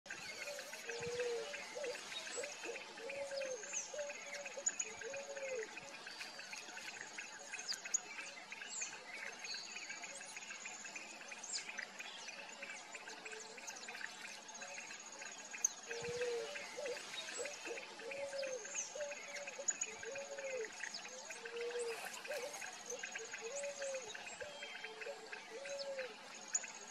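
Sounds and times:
small birds chirping: 0.1s - 26.9s
pigeon cooing: 1.0s - 2.0s.

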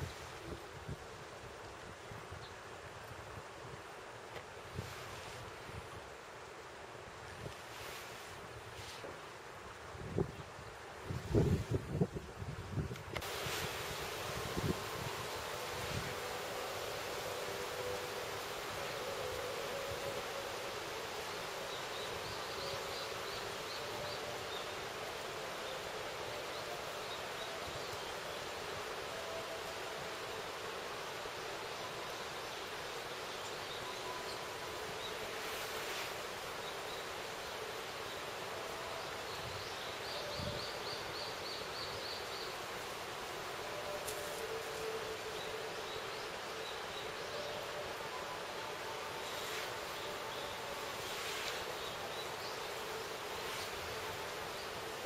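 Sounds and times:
waterfall rushing: 13.2s - 55.0s.

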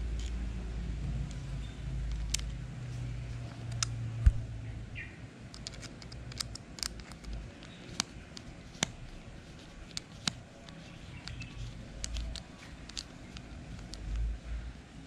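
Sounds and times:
screwdriver clicks and scrapes: 2.0s - 2.6s, 5.5s - 9.0s, 9.8s - 14.2s.

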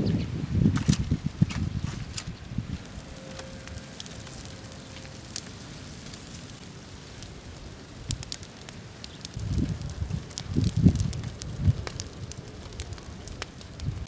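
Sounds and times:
low rumble: 0.0s - 6.6s
fire crackling and hissing: 0.0s - 14.0s.

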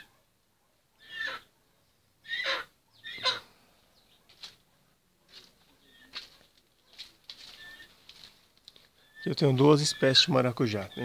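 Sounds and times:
leaves rustling: 5.3s - 10.7s.

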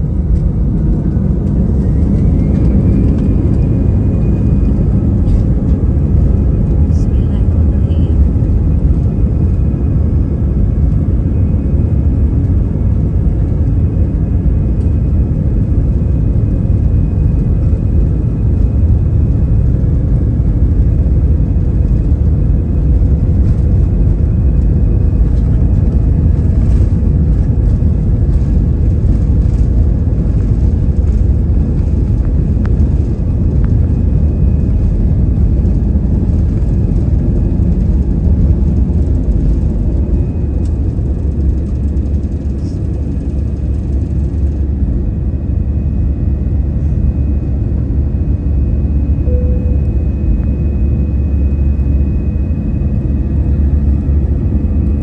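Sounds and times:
jet engines and wheels rumbling: 0.0s - 55.0s.

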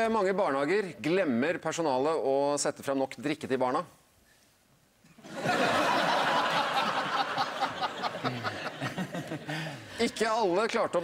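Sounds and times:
studio audience laughing: 5.2s - 10.0s.

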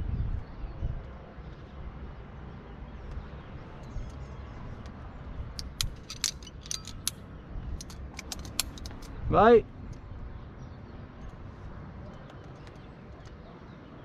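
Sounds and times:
rumbling and rustling on microphone: 0.0s - 2.3s
climbing gear clicking: 5.6s - 7.2s, 7.8s - 9.2s.

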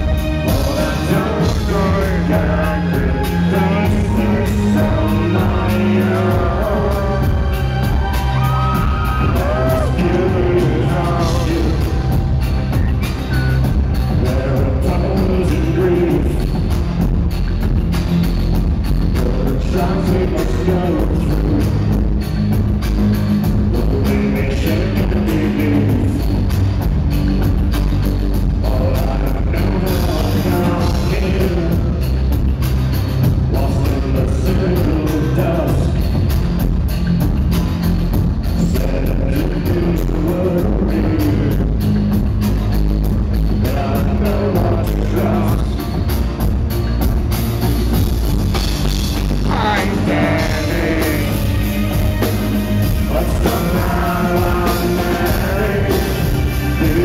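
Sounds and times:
man singing: 0.0s - 17.0s, 19.0s - 22.3s, 23.4s - 26.6s, 28.5s - 32.4s, 33.2s - 36.4s, 38.4s - 42.2s, 43.4s - 46.1s, 49.2s - 57.0s
live band music: 0.0s - 57.0s.

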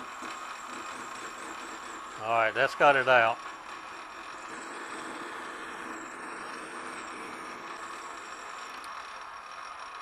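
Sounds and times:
metal lathe humming: 0.0s - 10.0s.

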